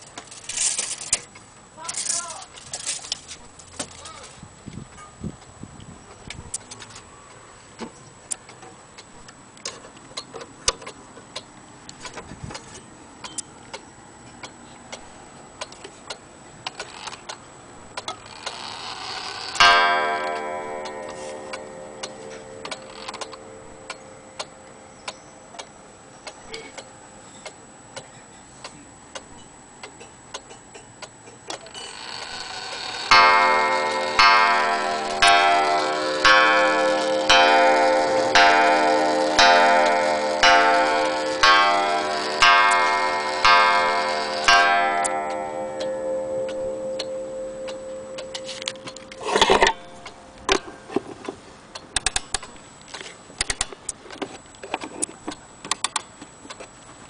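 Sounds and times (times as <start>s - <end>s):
clock strike ringing: 18.6s - 25.9s, 31.9s - 50.9s
wall clock ticking: 32.4s - 50.2s.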